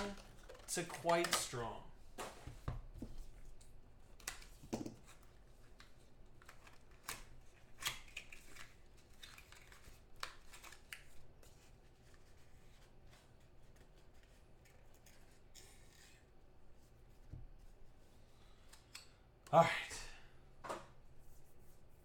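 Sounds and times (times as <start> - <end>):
cards rustling and clicking: 0.0 - 2.4, 3.0 - 16.4.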